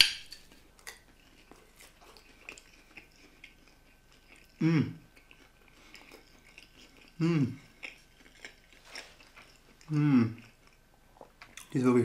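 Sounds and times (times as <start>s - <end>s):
person chewing pastry: 0.0s - 11.8s
short vocal hum: 4.6s - 5.1s, 7.2s - 7.6s.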